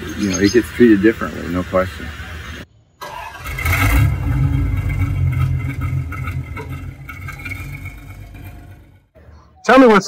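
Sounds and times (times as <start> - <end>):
car engine running at tailpipe: 4.7 - 9.0.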